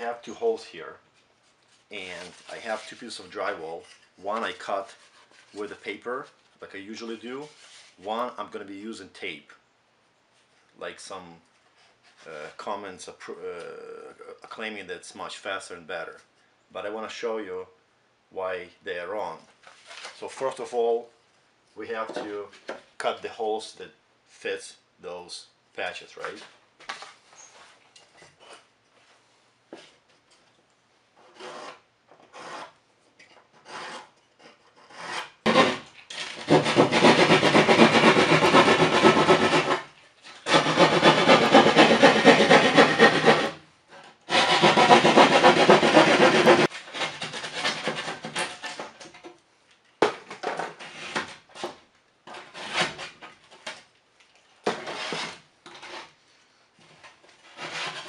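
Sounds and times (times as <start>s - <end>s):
light scrapes and knocks: 1.4s - 6.4s, 21.9s - 22.9s, 50.1s - 56.2s, 56.8s - 58.0s
drywall saw rasping: 31.2s - 32.8s, 33.5s - 43.6s, 44.3s - 49.1s, 50.7s - 53.2s, 54.7s - 56.1s, 57.4s - 58.0s.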